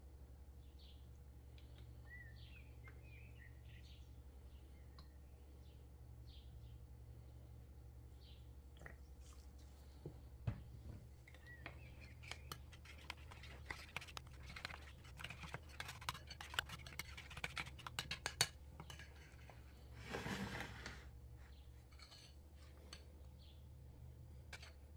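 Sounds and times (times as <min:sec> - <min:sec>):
steady low hum: 0:00.0 - 0:24.9
spoon scraping ceramic bowl: 0:11.8 - 0:21.0.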